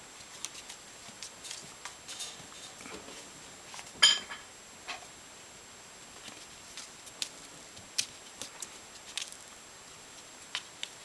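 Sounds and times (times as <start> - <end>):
kitten paws scuffling on floor: 6.1 - 9.4.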